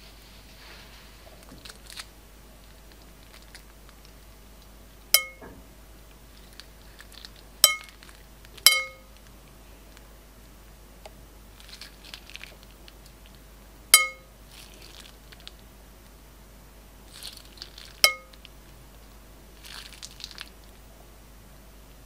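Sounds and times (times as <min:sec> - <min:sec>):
slime crackling and bag crinkling: 0:01.1 - 0:04.4, 0:06.3 - 0:09.3, 0:11.5 - 0:13.4, 0:14.5 - 0:15.6, 0:17.1 - 0:18.8, 0:19.5 - 0:20.8
sharp ringing clinks: 0:05.2 - 0:05.4, 0:08.7 - 0:09.1, 0:14.0 - 0:14.3.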